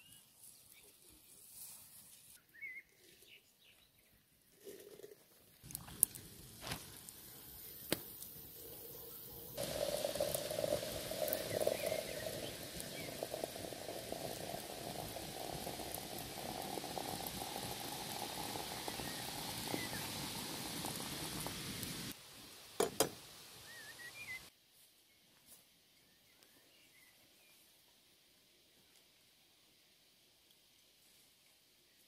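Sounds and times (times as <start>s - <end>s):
water pouring into teapot: 9.4s - 22.2s.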